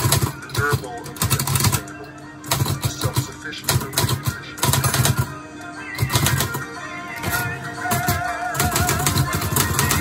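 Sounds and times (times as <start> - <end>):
background music: 0.0 - 10.0
typewriter keys clacking: 7.3 - 10.0.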